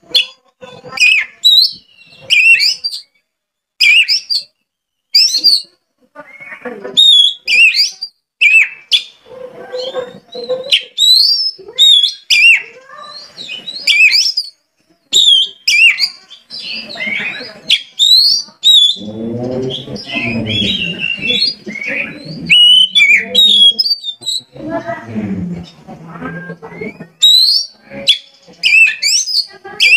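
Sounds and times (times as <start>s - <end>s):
bird singing whistled notes: 1.0s - 3.2s, 3.8s - 5.7s, 7.0s - 9.1s, 10.8s - 24.6s, 26.3s - 29.9s.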